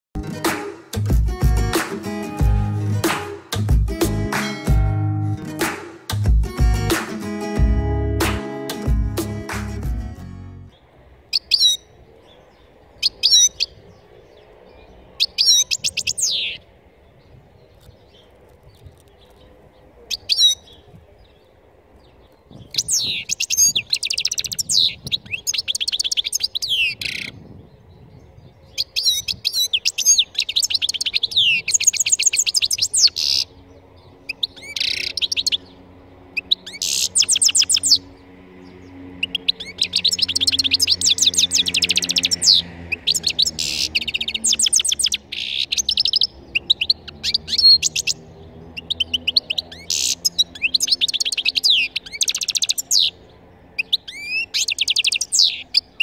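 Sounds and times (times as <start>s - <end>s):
goldfinch twittering: 11.3s - 11.9s, 13.0s - 13.8s, 15.2s - 16.6s, 22.6s - 27.3s, 28.7s - 56.0s.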